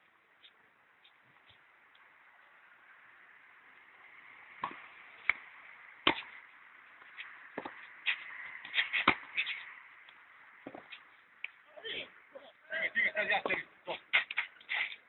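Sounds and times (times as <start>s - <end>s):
tennis ball pops: 4.6s - 5.4s.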